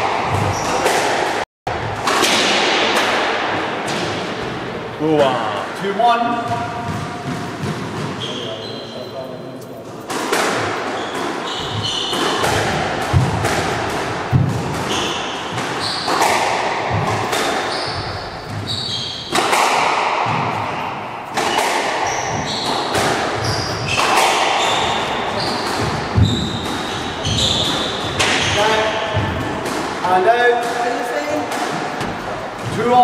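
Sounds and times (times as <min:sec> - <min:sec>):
squash ball hitting rackets and walls: 0:00.0 - 0:05.5, 0:06.3 - 0:08.8, 0:09.9 - 0:33.0
shoes squeaking on wooden floor: 0:06.3 - 0:09.5, 0:10.8 - 0:12.7, 0:14.6 - 0:19.4, 0:20.3 - 0:29.6, 0:31.7 - 0:33.0
heavier thuds: 0:11.6 - 0:18.7, 0:22.2 - 0:30.0, 0:31.5 - 0:33.0.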